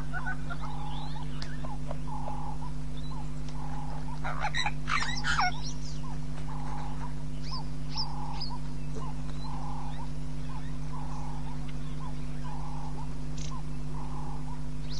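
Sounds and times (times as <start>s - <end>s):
birds chirping: 0.0s - 14.9s
hornbill calling: 0.0s - 14.9s
steady low hum: 0.0s - 14.9s.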